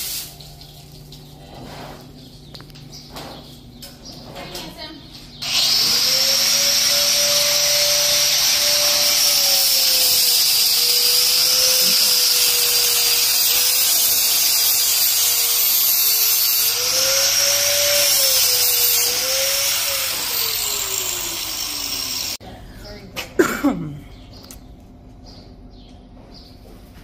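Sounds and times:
electric grinder whining: 0:05.4 - 0:22.4.

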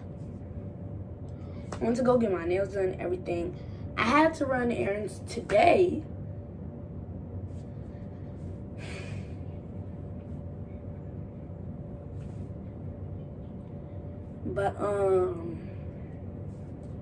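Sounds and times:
faint hum: 0:00.0 - 0:17.0
low room rumble: 0:00.0 - 0:17.0
person breathing: 0:07.5 - 0:09.8.

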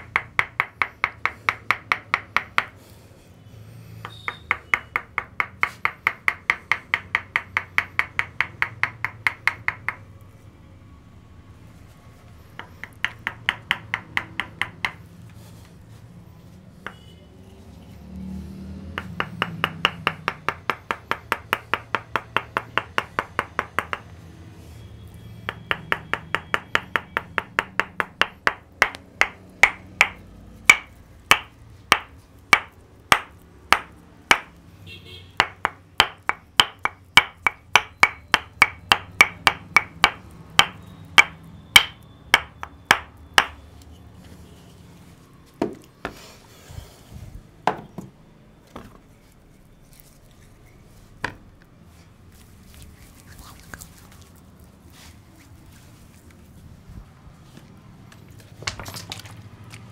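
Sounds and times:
wooden mallet knocking on wood: 0:00.0 - 0:02.8, 0:04.0 - 0:10.1, 0:12.6 - 0:15.0, 0:18.9 - 0:24.1, 0:25.4 - 0:34.6, 0:35.4 - 0:43.6, 0:45.6 - 0:46.2, 0:47.6 - 0:48.2.

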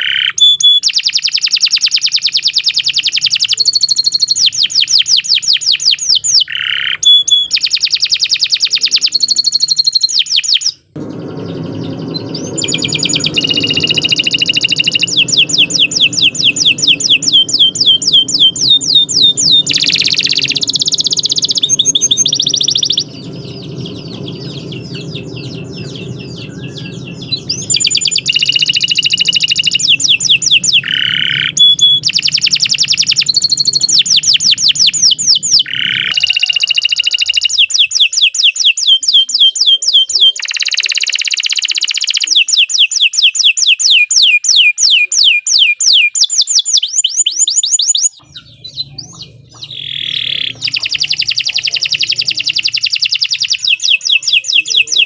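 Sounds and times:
low background noise: 0:00.0 - 0:41.6
canary singing trills: 0:00.0 - 0:55.0.

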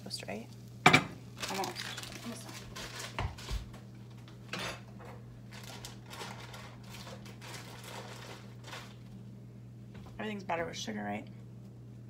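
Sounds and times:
steady low hum: 0:00.0 - 0:12.0
dishes and utensils clinking: 0:04.5 - 0:05.2.

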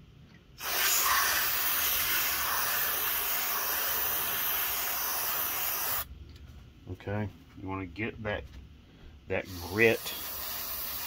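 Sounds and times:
pressurized spray jet hissing: 0:00.6 - 0:06.1, 0:09.4 - 0:11.0.

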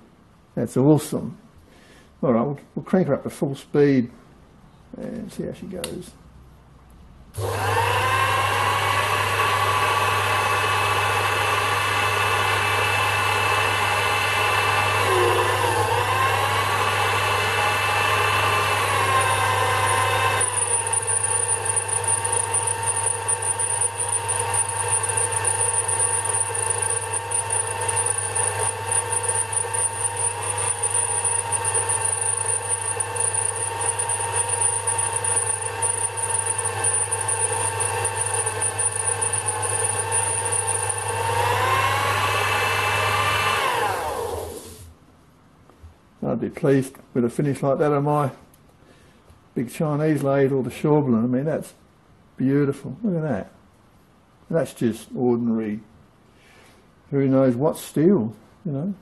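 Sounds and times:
lathe motor humming: 0:07.4 - 0:44.8
high whine of lathe cutting metal: 0:13.4 - 0:44.8.

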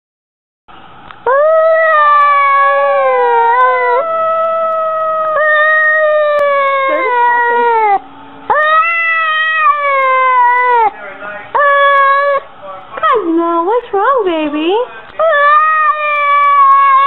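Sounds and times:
cat meowing: 0:01.3 - 0:10.9, 0:11.6 - 0:12.5, 0:15.2 - 0:17.0.

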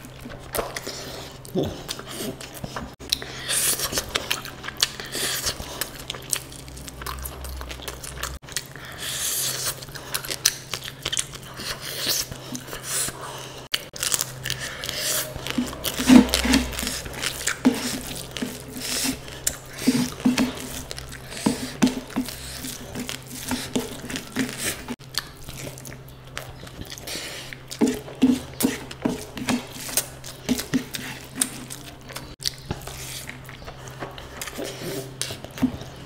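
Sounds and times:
person chewing and biting food: 0:00.0 - 0:36.0.

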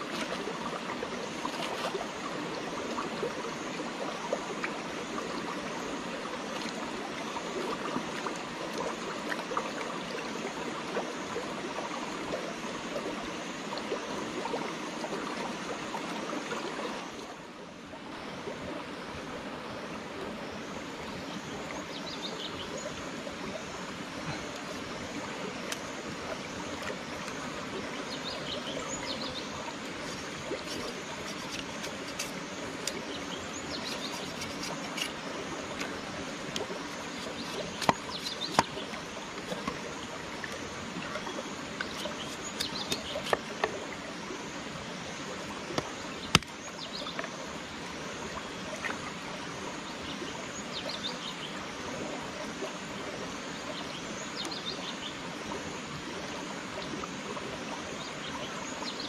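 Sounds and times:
stream running over stones: 0:00.0 - 0:59.0
small birds chirping: 0:28.0 - 0:35.8, 0:36.8 - 0:39.0, 0:41.3 - 0:43.5.

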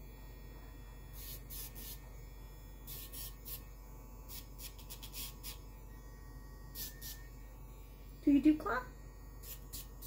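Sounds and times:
nail grinder hum: 0:01.1 - 0:02.2, 0:02.8 - 0:07.5, 0:09.3 - 0:10.0.

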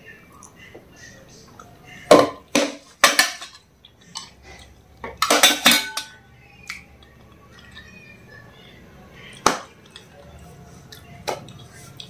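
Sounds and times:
plate and spoon clattering: 0:02.1 - 0:04.4, 0:05.1 - 0:06.2.

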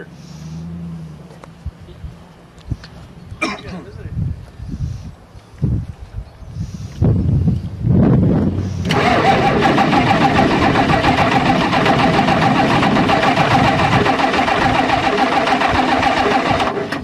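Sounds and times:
diesel engine cranking: 0:08.4 - 0:17.0.

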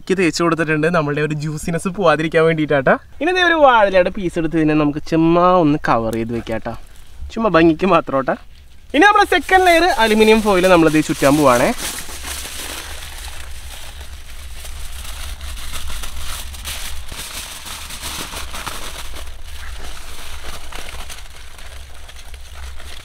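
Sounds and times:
low steady rumble: 0:00.0 - 0:23.0
aluminium foil crinkling: 0:05.9 - 0:07.2, 0:07.8 - 0:23.0.

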